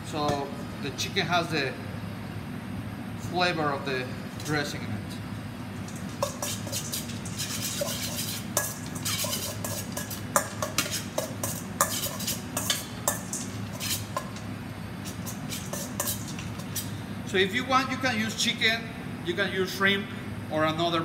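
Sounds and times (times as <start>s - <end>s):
metal utensil scraping bowl: 5.8s - 17.0s.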